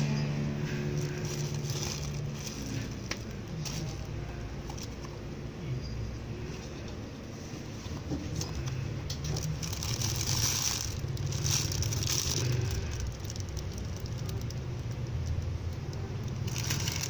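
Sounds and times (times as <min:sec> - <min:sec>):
steady low hum: 0:00.0 - 0:17.0
plastic packaging crinkling: 0:00.7 - 0:05.2, 0:08.3 - 0:17.0.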